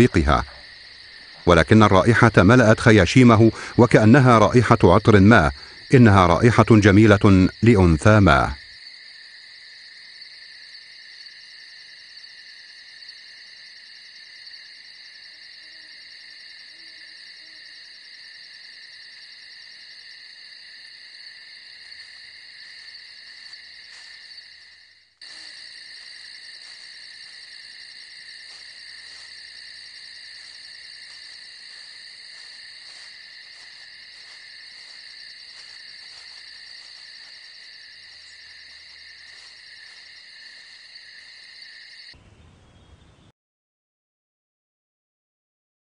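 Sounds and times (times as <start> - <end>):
insects trilling: 0.0 - 43.2.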